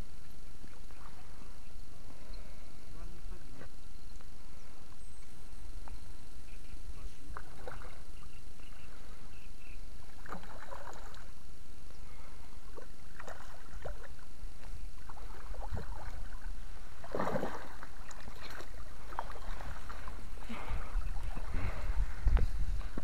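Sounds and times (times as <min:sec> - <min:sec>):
landing net scooping water: 0:07.2 - 0:08.4, 0:10.0 - 0:11.4, 0:12.2 - 0:23.0
fish splashing at water surface: 0:15.0 - 0:21.9.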